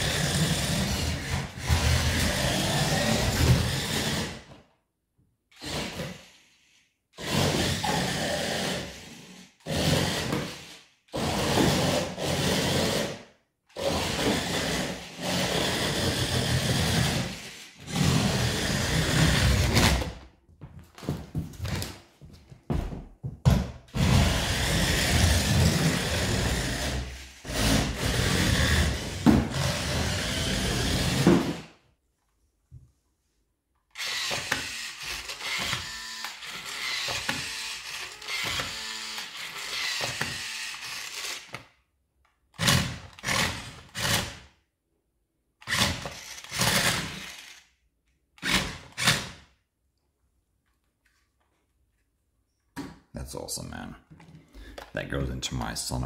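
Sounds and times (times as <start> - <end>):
toy car motor whirring: 0.0 - 4.5, 5.5 - 19.7, 24.0 - 31.3, 33.9 - 41.7, 45.6 - 47.8.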